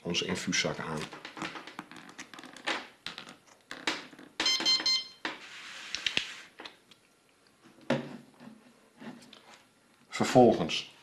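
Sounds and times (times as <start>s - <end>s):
short electronic beeps: 4.4s - 5.2s.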